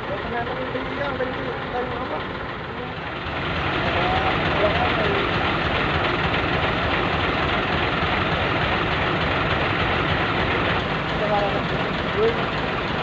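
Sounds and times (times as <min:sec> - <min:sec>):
road noise: 0:00.0 - 0:13.0
truck engine running: 0:00.0 - 0:13.0.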